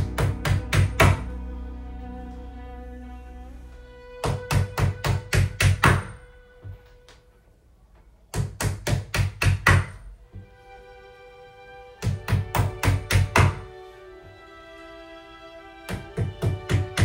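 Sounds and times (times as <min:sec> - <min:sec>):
quiet background music: 0:00.0 - 0:17.0.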